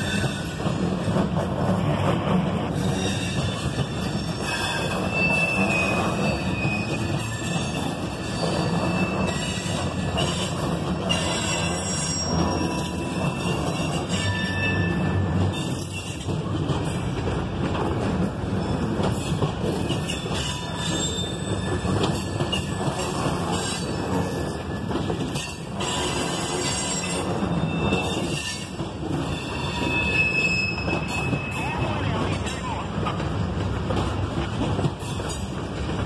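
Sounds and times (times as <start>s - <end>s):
freight train wheels rumbling: 0.0s - 36.0s
high wheel squeal: 2.7s - 16.3s, 19.2s - 31.9s.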